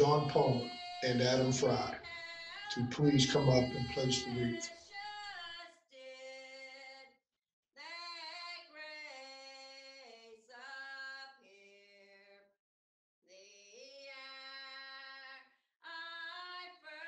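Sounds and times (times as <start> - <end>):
person singing unaccompanied: 0.0 - 4.7.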